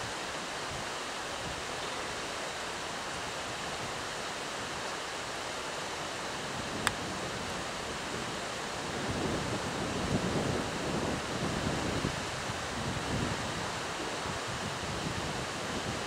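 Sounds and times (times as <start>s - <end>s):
wind on microphone: 6.2s - 16.0s.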